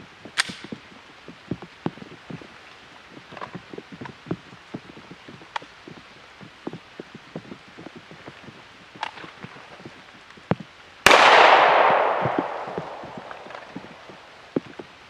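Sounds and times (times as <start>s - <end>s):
light rain pattering: 0.0s - 15.0s
pistol shot with echo: 11.1s - 14.1s.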